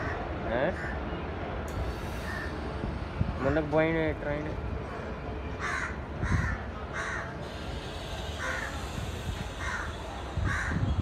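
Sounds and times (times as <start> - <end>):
crows cawing: 0.0 - 1.0, 5.6 - 7.4, 9.6 - 9.9, 10.5 - 10.8.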